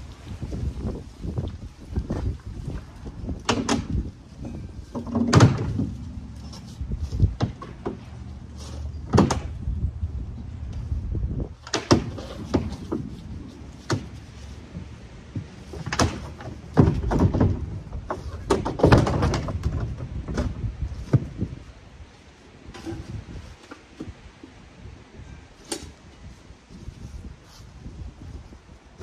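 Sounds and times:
hollow plastic knocks and clatters: 0:04.9 - 0:06.0, 0:14.8 - 0:21.4.

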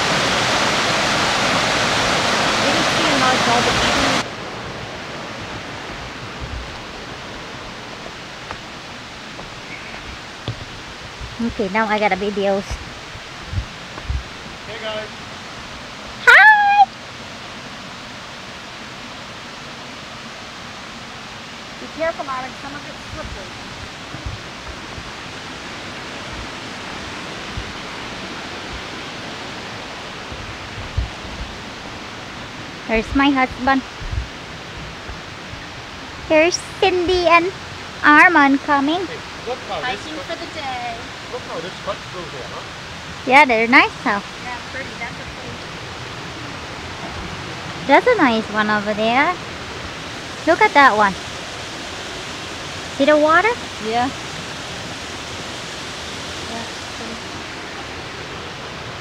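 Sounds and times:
waterfall rushing: 0:00.0 - 0:59.0
soft footstep thumps: 0:09.3 - 0:09.6, 0:10.4 - 0:11.3, 0:13.5 - 0:14.3.

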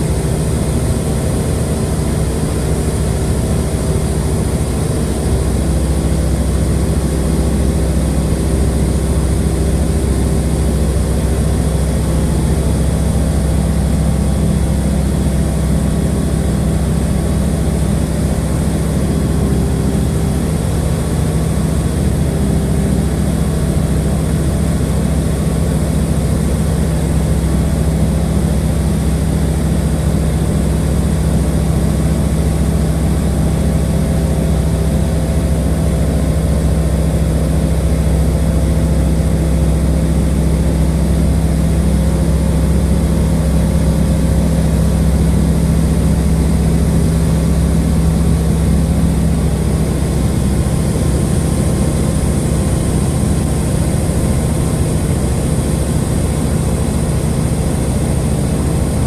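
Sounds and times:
propeller engine droning: 0:00.0 - 0:59.0.

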